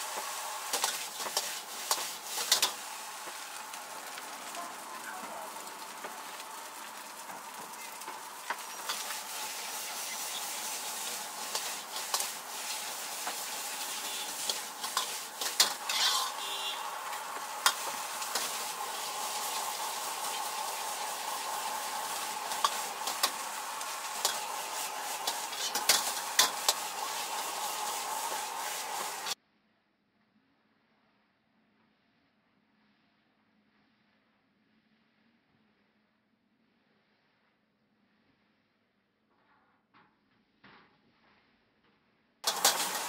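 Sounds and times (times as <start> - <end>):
rice sizzling in a wok: 0.0 - 29.4, 42.4 - 43.0.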